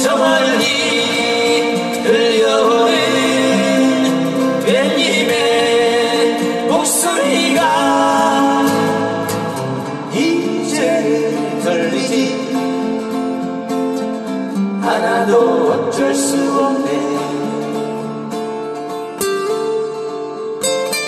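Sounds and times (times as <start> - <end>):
person singing: 0.0 - 13.0, 14.8 - 18.0
acoustic guitars strumming: 0.0 - 21.0.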